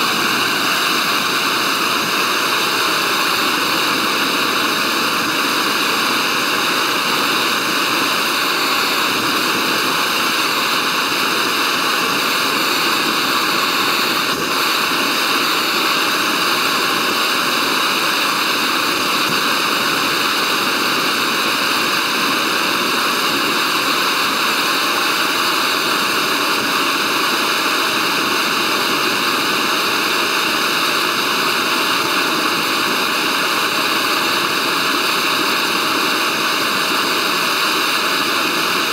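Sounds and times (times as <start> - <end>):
gas stove burner hissing: 0.0 - 38.9.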